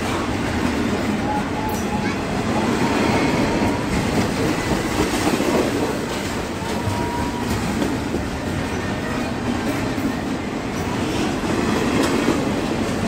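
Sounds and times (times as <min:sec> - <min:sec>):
freight train rumbling past: 0:00.0 - 0:13.0
train wheels clicking over track: 0:03.0 - 0:13.0.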